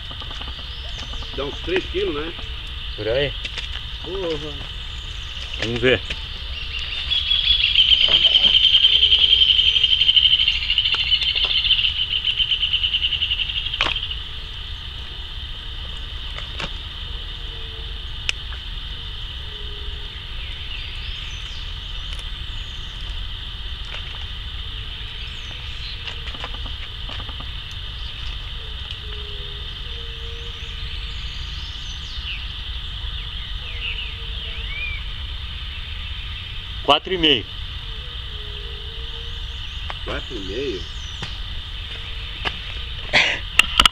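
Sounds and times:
insects trilling: 0:00.0 - 0:43.9.

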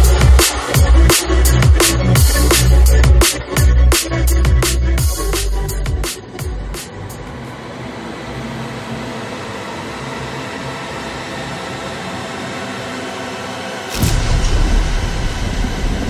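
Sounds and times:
loud bass hit: 0:00.0 - 0:06.8, 0:13.9 - 0:16.0.

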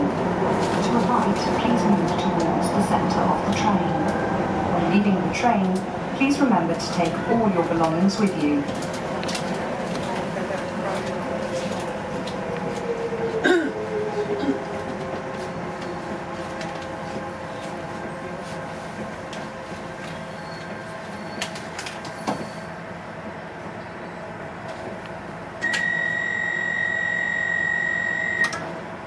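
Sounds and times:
train motor whine: 0:25.6 - 0:28.7.

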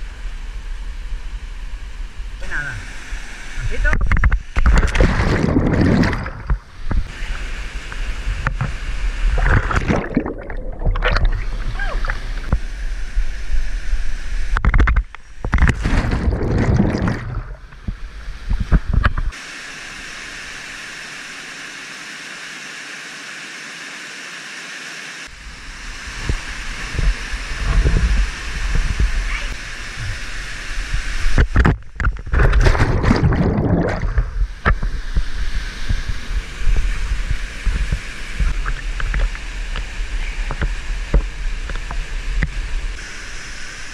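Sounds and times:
roar of falling water: 0:15.7 - 0:17.7.

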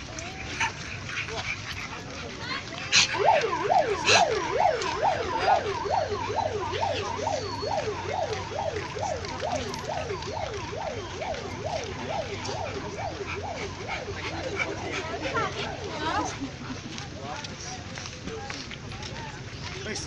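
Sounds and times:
electronic siren yelping: 0:01.7 - 0:16.3.

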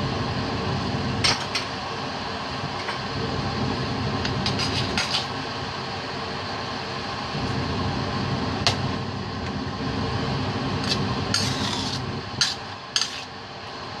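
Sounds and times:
steady low hum: 0:00.0 - 0:14.0
spoon scraping a metal pan: 0:04.5 - 0:05.3, 0:10.8 - 0:13.3.

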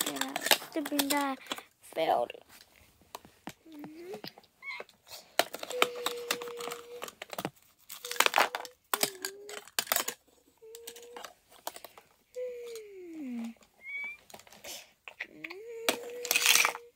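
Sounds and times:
plastic bag and paper crinkling: 0:00.0 - 0:12.0, 0:16.0 - 0:16.9.

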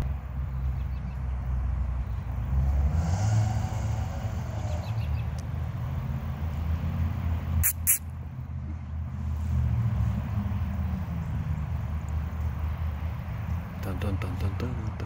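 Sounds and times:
low outdoor rumble: 0:00.0 - 0:15.0
short sharp high-pitched sounds: 0:07.6 - 0:08.1.

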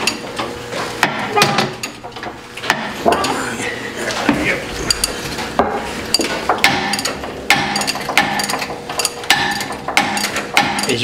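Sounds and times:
metal tools clanking on steel: 0:04.8 - 0:05.4, 0:06.0 - 0:11.0.

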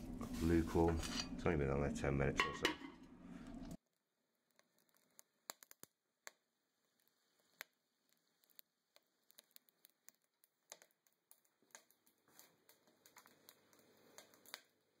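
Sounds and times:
wood stove crackling: 0:03.0 - 0:15.0.

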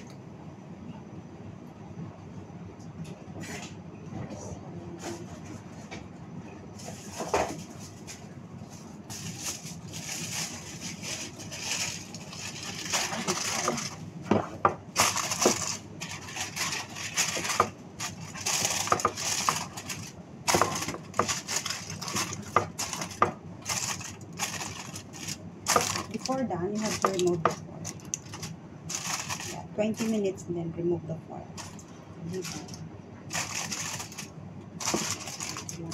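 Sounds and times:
aluminium foil crinkling: 0:06.8 - 0:14.1, 0:14.9 - 0:30.4, 0:31.5 - 0:35.9.

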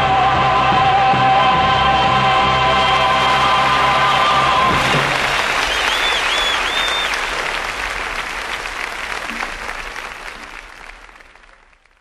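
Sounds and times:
audience applause: 0:02.0 - 0:12.0
whistles from audience: 0:03.4 - 0:07.7.

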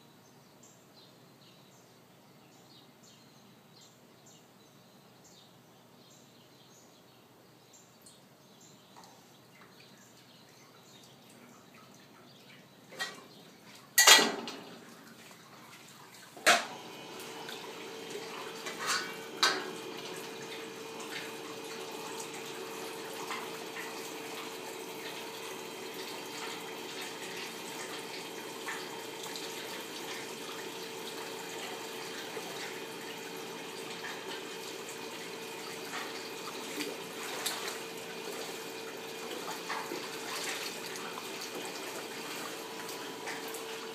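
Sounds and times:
running water: 0:08.9 - 0:43.9
water sloshing and splashing: 0:10.8 - 0:43.9.

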